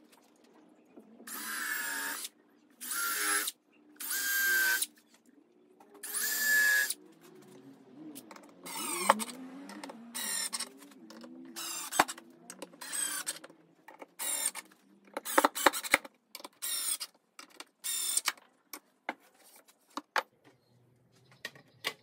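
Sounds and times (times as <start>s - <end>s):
cordless drill driving screws: 8.6s - 9.4s, 10.2s - 10.7s, 11.6s - 12.2s, 12.8s - 13.4s, 14.2s - 16.0s, 16.6s - 17.1s, 17.8s - 18.3s.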